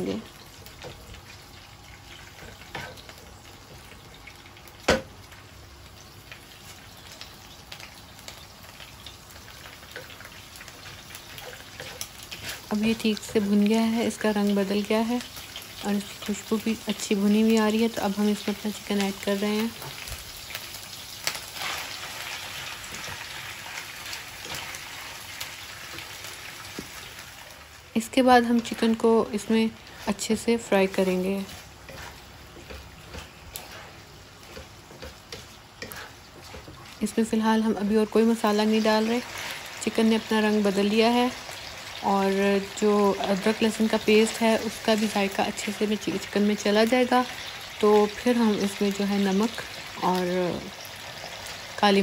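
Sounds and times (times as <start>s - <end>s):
paste sizzling in hot oil: 6.0s - 52.0s.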